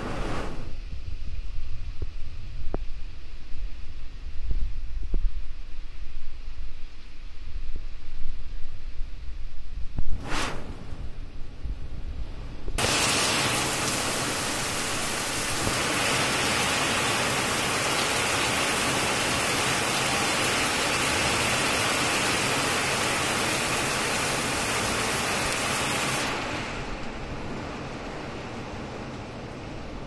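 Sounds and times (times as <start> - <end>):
heavy rain pouring: 12.8 - 30.0.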